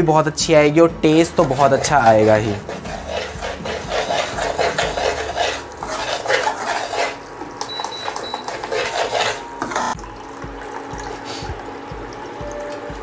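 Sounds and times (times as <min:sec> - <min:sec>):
metal spoon scraping a steel pan: 0:01.3 - 0:07.2, 0:08.0 - 0:10.0.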